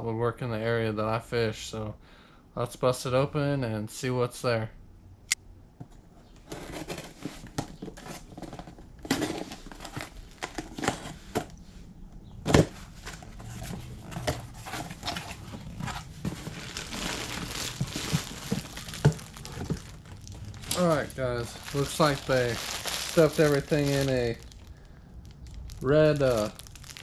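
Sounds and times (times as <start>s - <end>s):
packaging crinkling: 13.0s - 27.0s
cardboard box tearing: 14.2s - 24.5s.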